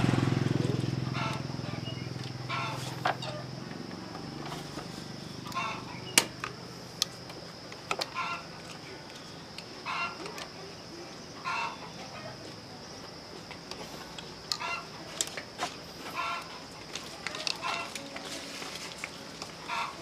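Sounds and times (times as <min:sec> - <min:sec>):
chicken clucking: 0:02.5 - 0:03.4, 0:17.3 - 0:18.1, 0:19.6 - 0:20.0.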